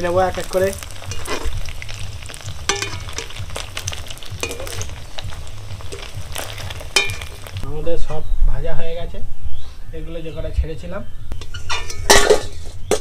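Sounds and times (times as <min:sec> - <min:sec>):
food sizzling in hot oil: 0:00.0 - 0:07.6.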